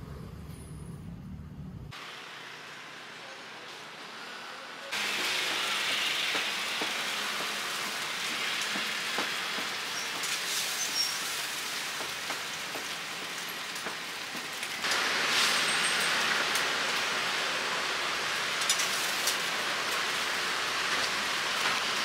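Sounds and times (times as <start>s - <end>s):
griddle sizzling: 4.9s - 22.0s.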